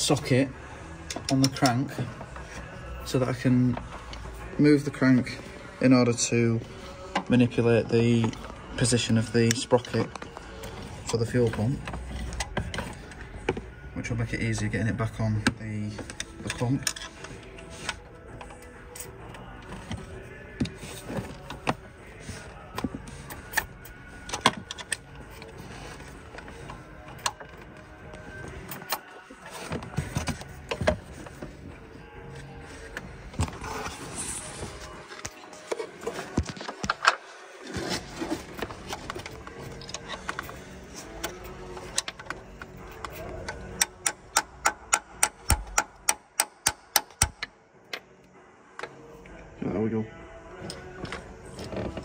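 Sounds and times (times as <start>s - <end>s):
hand tools and engine parts clicking: 0.0s - 49.4s.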